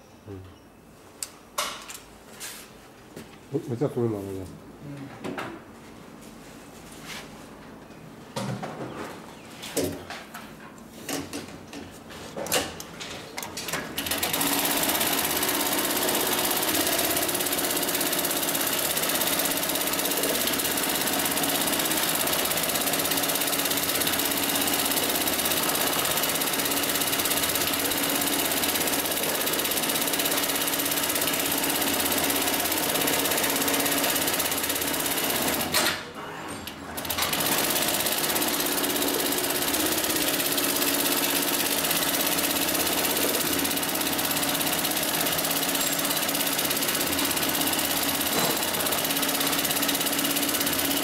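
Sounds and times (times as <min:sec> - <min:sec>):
sewing machine running fast: 0:14.0 - 0:35.7, 0:37.0 - 0:51.0.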